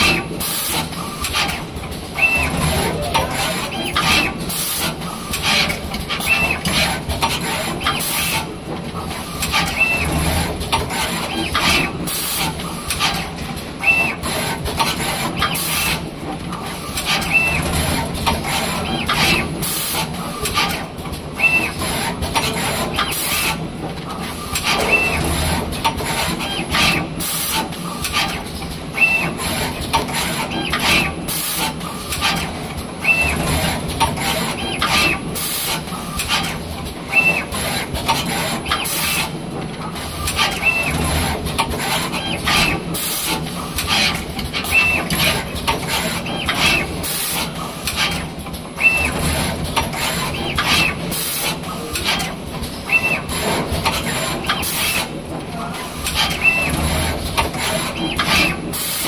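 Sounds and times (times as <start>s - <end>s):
steady machine hum: 0.0s - 9.3s.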